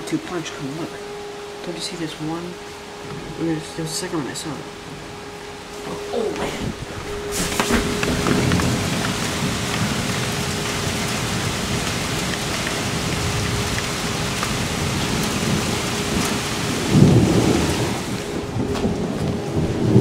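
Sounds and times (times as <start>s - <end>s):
rain falling: 0.0s - 20.0s
low rumble of thunder: 4.7s - 20.0s.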